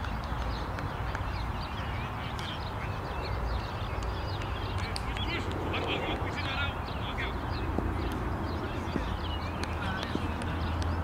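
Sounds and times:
birds chirping: 0:00.0 - 0:11.0
steady low rumble: 0:02.6 - 0:11.0.

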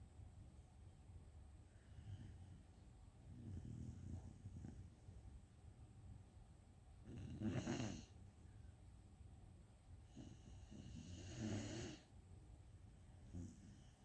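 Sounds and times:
dog snoring: 0:03.3 - 0:05.0, 0:07.0 - 0:08.2, 0:10.0 - 0:12.1, 0:13.2 - 0:14.0.

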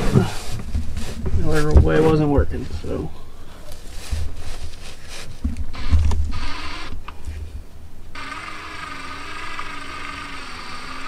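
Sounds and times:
handling knocks and bumps: 0:00.0 - 0:03.1
cordless drill running: 0:05.7 - 0:07.0, 0:08.1 - 0:11.0.

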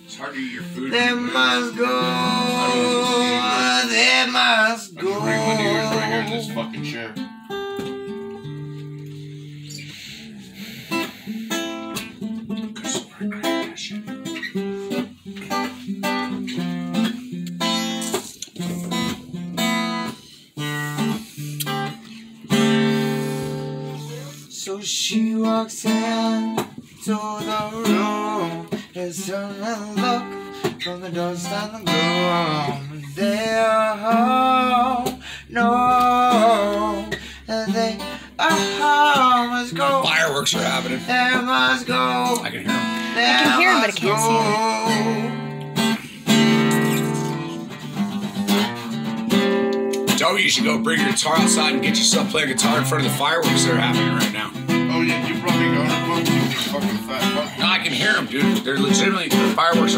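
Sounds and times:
acoustic guitar strumming: 0:00.0 - 0:59.9
person singing: 0:00.6 - 0:06.8, 0:23.2 - 0:45.7.

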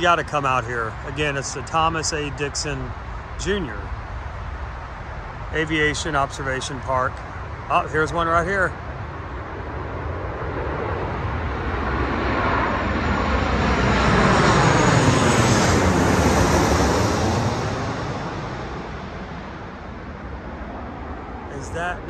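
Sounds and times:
airliner passing overhead: 0:00.0 - 0:22.0.

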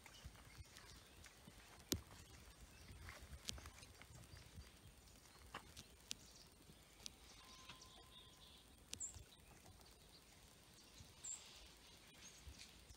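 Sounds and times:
soft clicks: 0:05.4 - 0:07.8.

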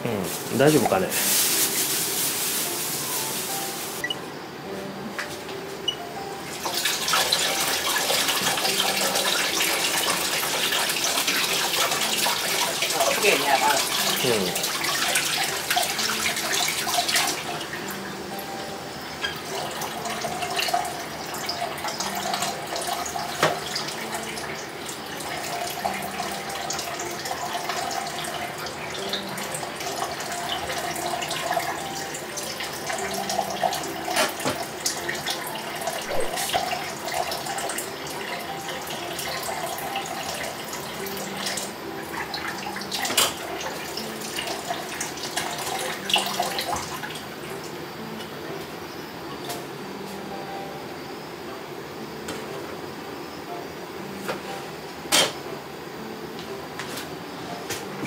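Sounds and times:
tap water running into sink: 0:06.6 - 0:17.5, 0:19.3 - 0:24.6, 0:32.6 - 0:47.2.

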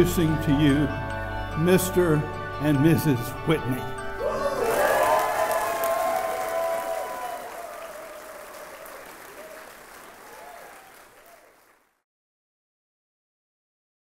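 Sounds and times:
whoops: 0:04.2 - 0:11.6
crowd applauding and cheering: 0:04.2 - 0:11.9.

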